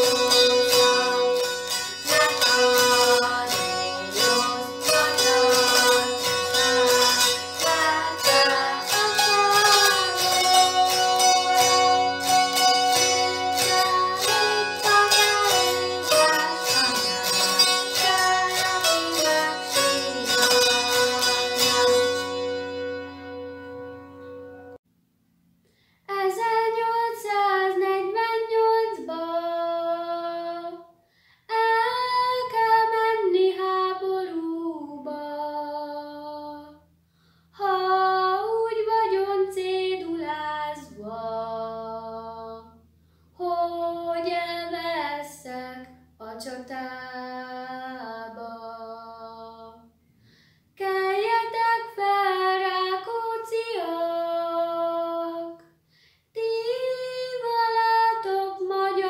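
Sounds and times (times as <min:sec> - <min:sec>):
girl singing unaccompanied: 0:00.0 - 0:22.2, 0:26.1 - 0:36.8, 0:37.6 - 0:42.8, 0:43.4 - 0:49.9, 0:50.8 - 0:55.6, 0:56.3 - 0:59.0
girl breathing: 0:25.6 - 0:26.1, 0:31.0 - 0:31.5, 0:37.0 - 0:37.5, 0:43.0 - 0:43.4, 0:50.0 - 0:50.8, 0:55.8 - 0:56.3.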